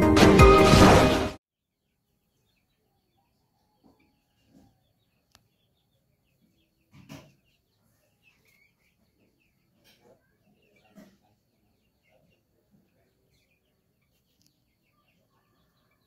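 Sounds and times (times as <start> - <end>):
intro music: 0.0 - 1.4.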